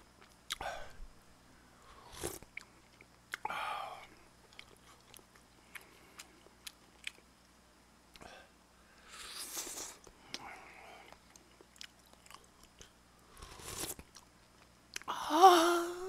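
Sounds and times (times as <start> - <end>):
chewing: 4.5 - 7.2, 9.5 - 15.1
slurping noodles: 9.1 - 10.0, 13.4 - 14.0.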